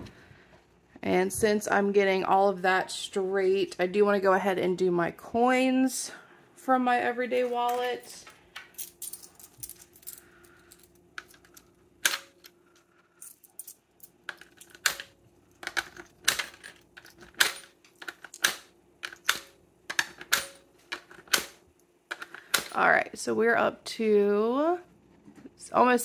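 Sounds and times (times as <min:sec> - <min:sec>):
coins clinking into jar: 0:08.7 - 0:11.6, 0:13.2 - 0:19.3.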